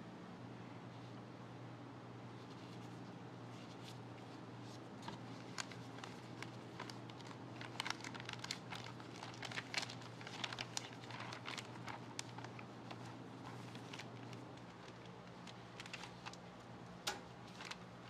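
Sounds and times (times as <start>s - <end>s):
steady low hum: 0.0s - 18.0s
plastic bag crinkling: 5.0s - 16.6s, 17.3s - 18.0s.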